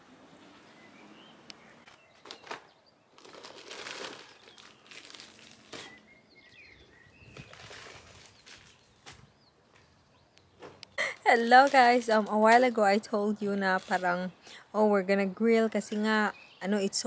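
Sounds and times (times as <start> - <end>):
rustling: 1.8 - 6.1, 7.2 - 9.3
bird chirps: 5.7 - 11.4, 15.9 - 17.0.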